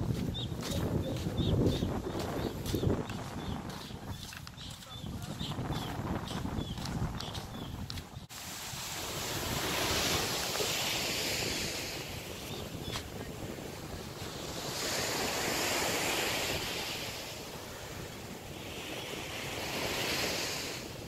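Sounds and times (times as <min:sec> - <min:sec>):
wind rumble on microphone: 0:00.0 - 0:21.0
surf washing up beach: 0:08.3 - 0:21.0.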